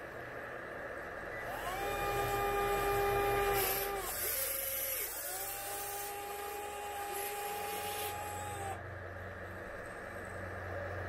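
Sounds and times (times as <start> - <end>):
electric motors whining: 1.3 - 9.0.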